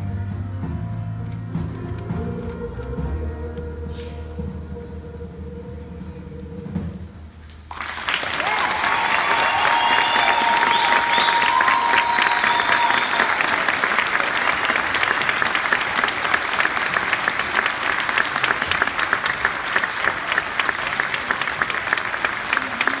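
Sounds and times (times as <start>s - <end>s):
audience applauding: 7.7s - 23.0s.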